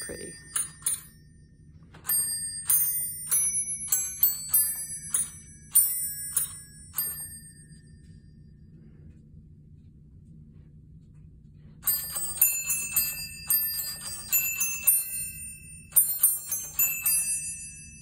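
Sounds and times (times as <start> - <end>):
glockenspiel melody: 0.0 - 1.2, 2.1 - 7.9, 11.8 - 18.0.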